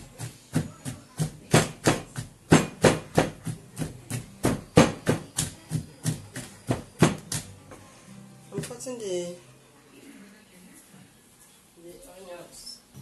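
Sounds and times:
wooden pestle pounding fruit in mortar: 0.0s - 7.5s.

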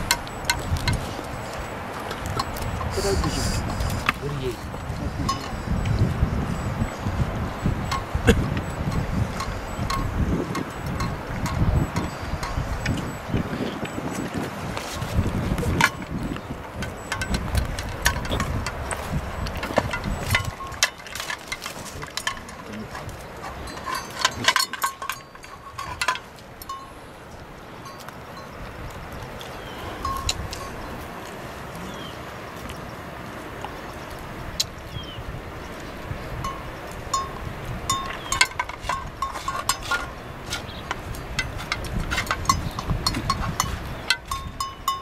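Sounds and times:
dog eating from metal bowl: 15.6s - 26.4s, 37.2s - 45.0s
dog eating from metal plate: 38.0s - 45.0s.

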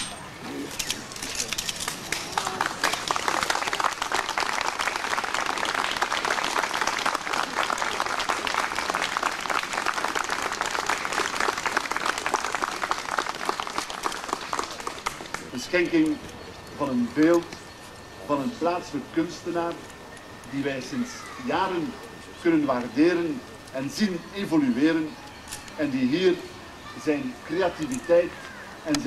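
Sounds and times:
crowd applauding: 1.8s - 15.6s.

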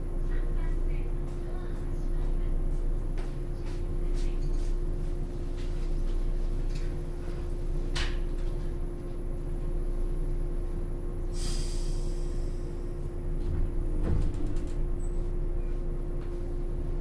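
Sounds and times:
train equipment humming: 0.0s - 17.0s
compressed air hiss: 11.4s - 12.5s.

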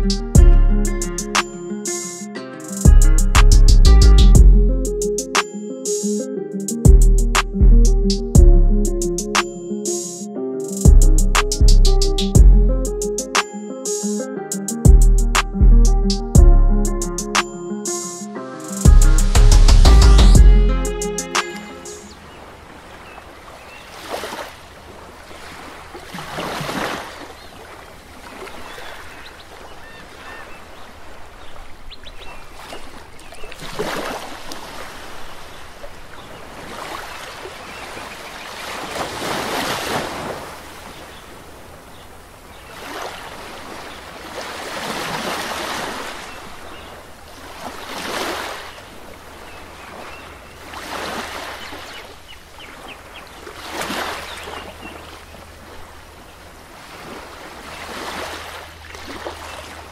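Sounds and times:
sea water surging against rock: 22.1s - 29.2s, 32.6s - 52.0s, 53.4s - 59.9s.

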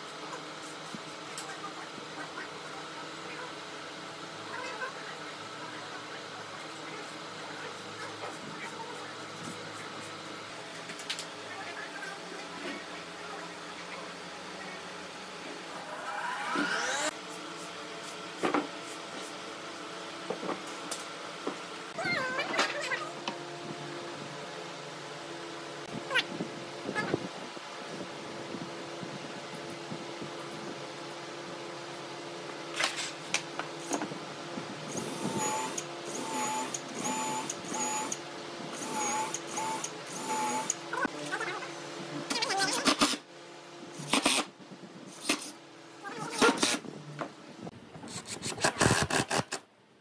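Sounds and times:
workshop hum: 0.0s - 50.0s
rising whine: 15.4s - 17.2s
cordless drill whining: 34.9s - 38.2s, 38.8s - 40.8s.

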